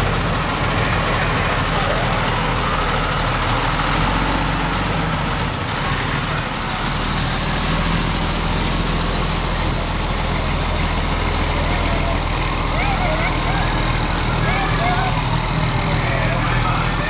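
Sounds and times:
fire engine engine: 0:00.0 - 0:17.0
truck diesel engine passing: 0:00.0 - 0:17.0.

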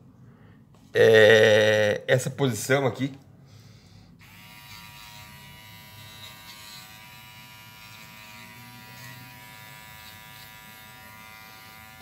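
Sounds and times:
pet trimmer buzzing: 0:04.2 - 0:12.0.

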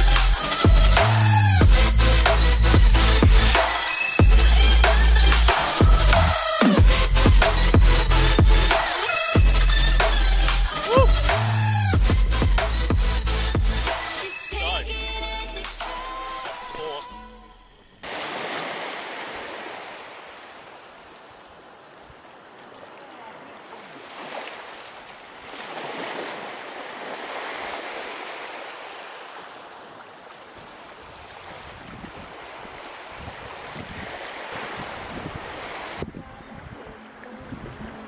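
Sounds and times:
small waves breaking on beach: 0:18.0 - 0:38.0.

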